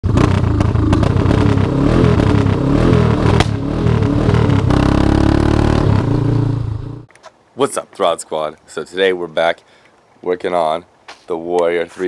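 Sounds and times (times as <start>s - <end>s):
engine revving: 0.0s - 7.1s.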